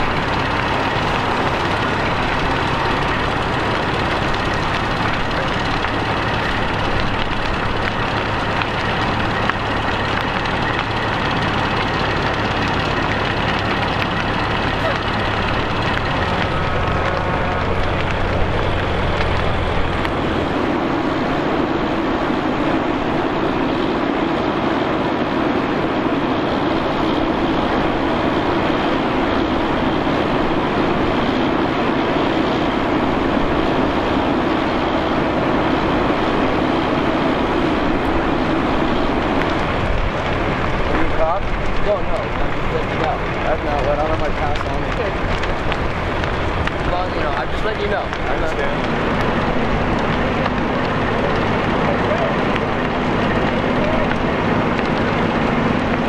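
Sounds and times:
fire engine pumps running: 0.0s - 56.0s
low hum: 0.0s - 56.0s.

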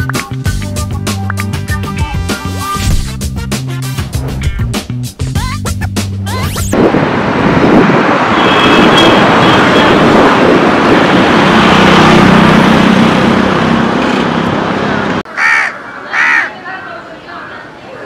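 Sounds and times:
road traffic noise: 2.4s - 18.0s
vehicle engine passing: 9.2s - 15.2s.

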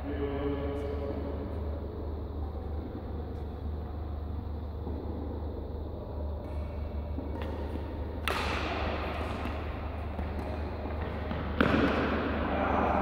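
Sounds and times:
steady low hum: 0.0s - 13.0s
rackets hitting shuttlecock: 6.4s - 13.0s.

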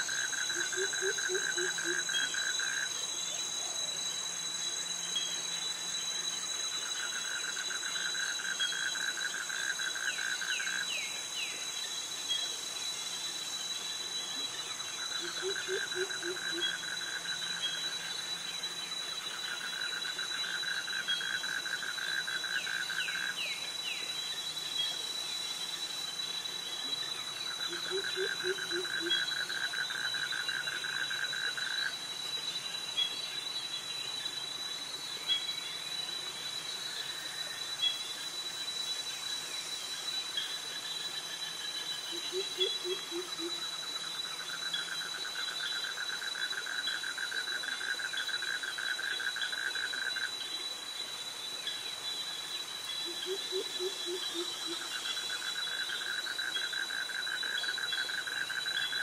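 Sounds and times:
insect chorus high-pitched drone: 0.0s - 59.0s.

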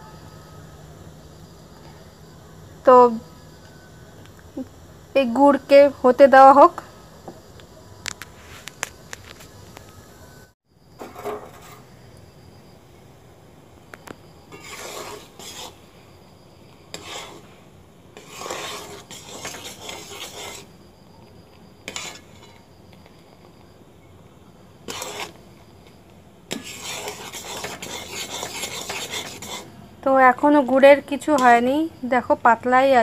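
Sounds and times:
spatula scraping metal pan: 11.0s - 11.9s, 14.5s - 15.8s, 16.9s - 17.6s, 18.2s - 20.7s, 21.8s - 22.6s, 24.9s - 25.4s, 26.5s - 29.7s.

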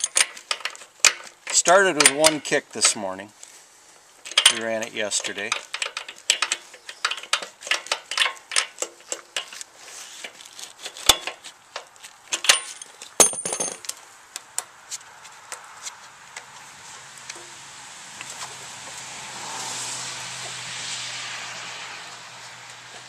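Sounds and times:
metallic clinks of handled parts: 0.0s - 3.0s, 4.2s - 14.0s.

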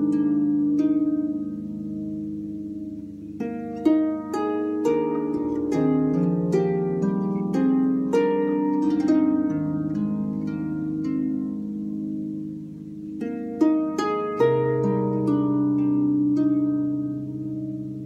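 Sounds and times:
plucked notes melody: 0.0s - 18.0s.

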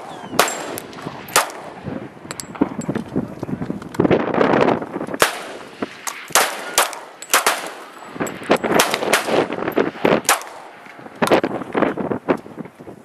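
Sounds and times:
pistol shots: 0.0s - 1.8s, 5.2s - 11.4s.

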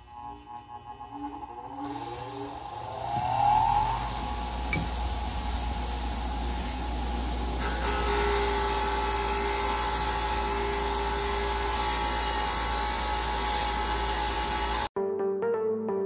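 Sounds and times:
electronic music: 0.0s - 7.6s
wire wheel grinding steel: 0.0s - 14.9s.

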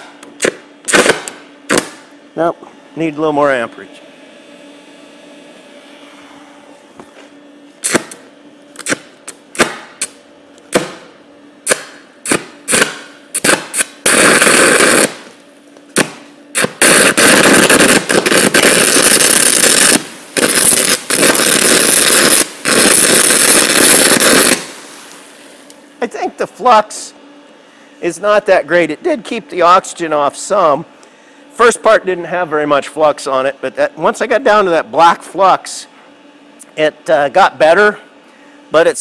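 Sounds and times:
welding arc crackling: 0.0s - 2.1s, 7.8s - 26.1s.

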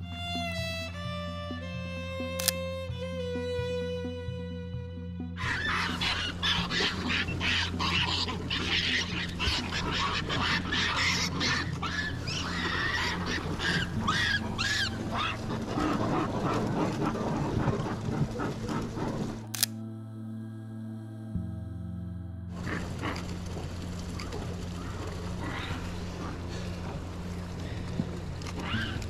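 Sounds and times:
sharp clicks: 2.3s - 2.6s, 19.4s - 19.8s
monkeys squealing and chirping: 5.4s - 19.5s, 24.8s - 26.4s, 28.6s - 29.0s.

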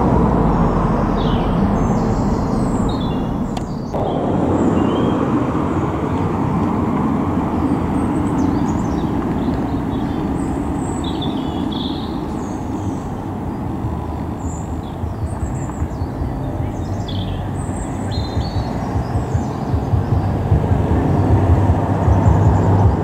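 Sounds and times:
propeller aircraft engine droning: 0.0s - 23.0s.

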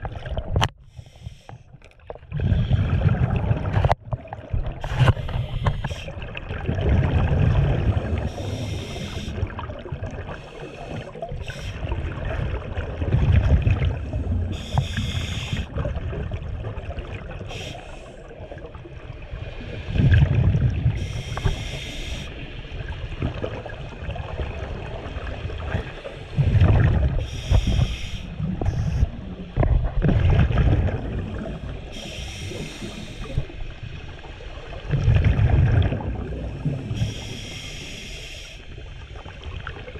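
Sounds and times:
exhaled air bubbling underwater: 0.0s - 39.9s
regulator inhale hiss: 0.8s - 1.7s, 4.8s - 6.1s, 8.2s - 9.5s, 10.3s - 11.9s, 14.5s - 15.7s, 17.5s - 18.3s, 21.0s - 22.4s, 27.2s - 29.1s, 31.6s - 33.6s, 36.6s - 38.8s.

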